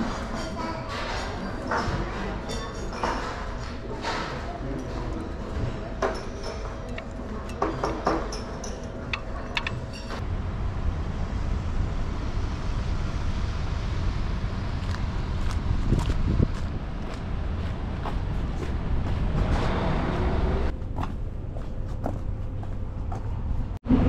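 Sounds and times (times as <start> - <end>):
chopsticks and tableware clinking: 0.0 - 10.2
dining room hubbub: 0.0 - 10.2
low rumble of street traffic: 4.0 - 24.0.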